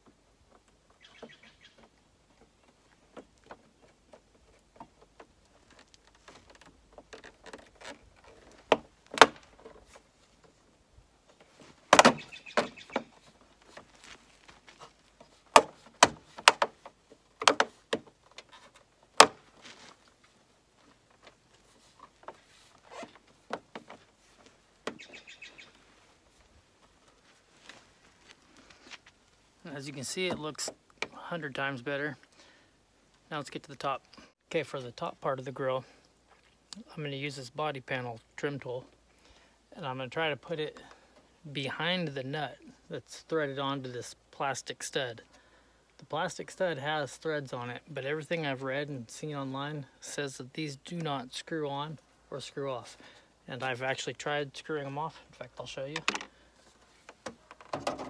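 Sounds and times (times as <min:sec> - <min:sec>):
birds chirping faintly: 0:00.0 - 0:07.1, 0:08.0 - 0:19.2, 0:20.1 - 0:27.5.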